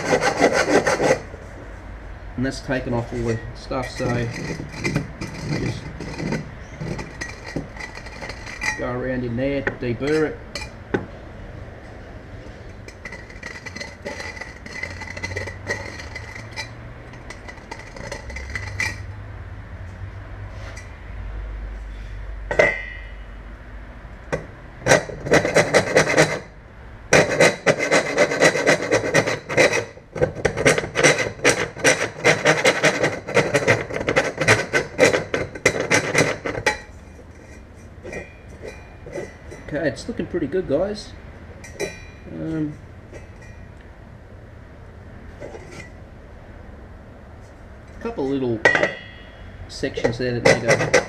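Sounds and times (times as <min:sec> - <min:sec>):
hand file rasping on metal: 0:00.0 - 0:01.4, 0:13.1 - 0:16.8, 0:24.9 - 0:26.5, 0:27.2 - 0:30.0, 0:30.7 - 0:36.8
metallic clink: 0:41.6 - 0:42.3.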